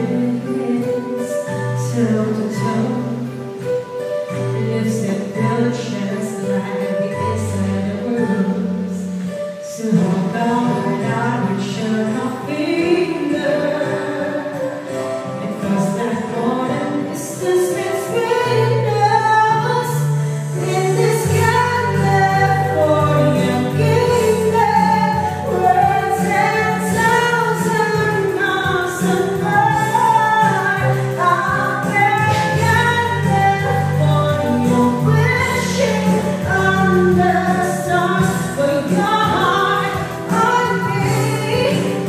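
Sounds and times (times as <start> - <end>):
women singing pop song: 0.0 - 42.0
electronic keyboard with beat: 2.6 - 4.6, 5.3 - 42.0
bass line: 18.5 - 42.0.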